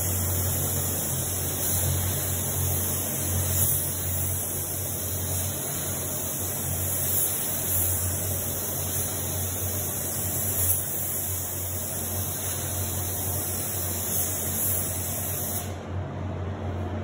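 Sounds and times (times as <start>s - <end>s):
spray booth air hum and hiss: 0.0s - 17.0s.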